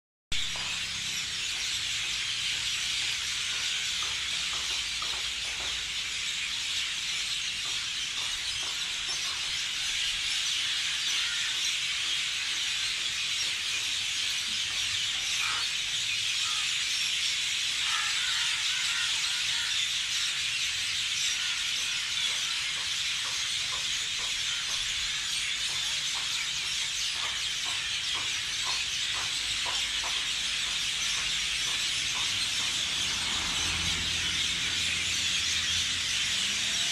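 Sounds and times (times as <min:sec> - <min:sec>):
chorus of high-pitched calls: 0:00.4 - 0:36.9.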